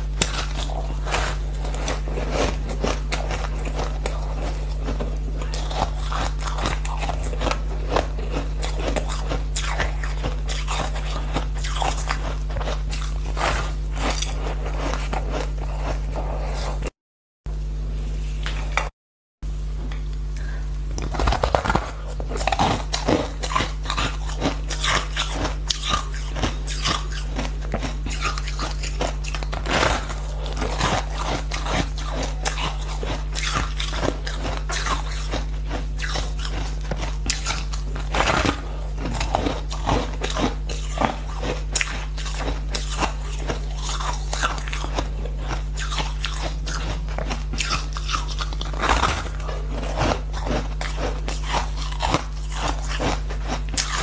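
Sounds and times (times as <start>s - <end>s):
crunching and chewing ice: 0.0s - 16.9s, 20.9s - 54.0s
steady low hum: 0.0s - 54.0s.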